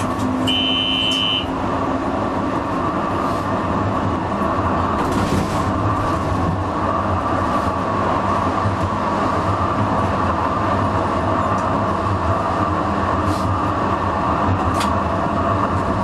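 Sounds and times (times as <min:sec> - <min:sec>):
tram wheels and motors rumbling: 0:00.0 - 0:16.0
high electronic beep: 0:00.5 - 0:01.5.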